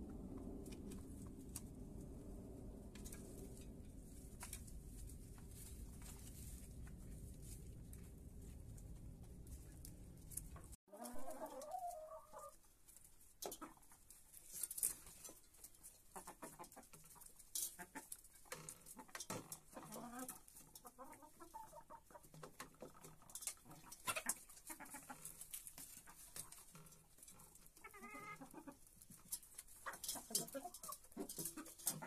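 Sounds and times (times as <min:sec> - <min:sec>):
chickens clucking: 0:10.5 - 0:32.0
beaks pecking metal basin: 0:27.9 - 0:32.0.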